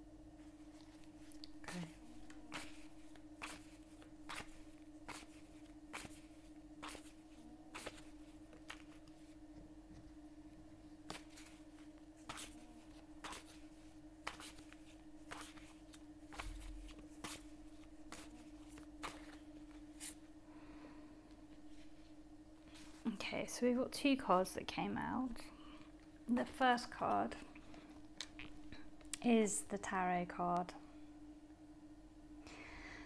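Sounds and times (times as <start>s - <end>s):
steady low hum: 0.0s - 33.0s
cards shuffling: 0.7s - 9.2s, 11.1s - 20.2s.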